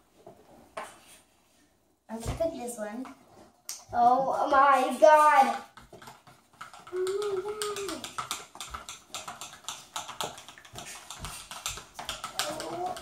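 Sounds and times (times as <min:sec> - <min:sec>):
child humming: 0:06.9 - 0:08.0.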